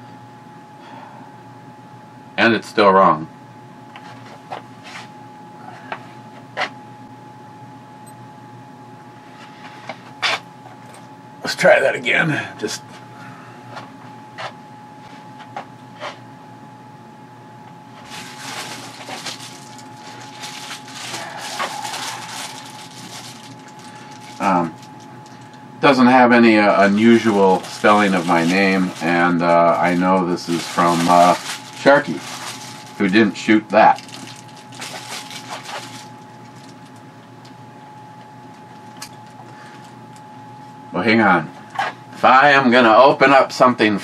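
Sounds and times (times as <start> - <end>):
envelope crinkling and tearing: 18.0 - 25.0, 26.8 - 33.2, 33.9 - 36.8.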